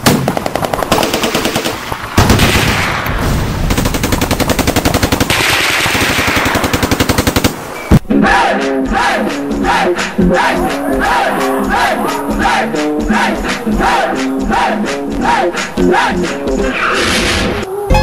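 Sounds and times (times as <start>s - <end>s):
automatic gunfire: 0.0s - 7.7s.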